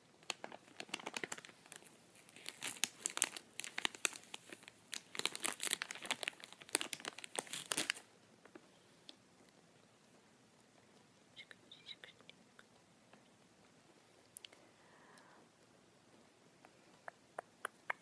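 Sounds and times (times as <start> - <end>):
candy bag crinkling: 0.2 - 8.1.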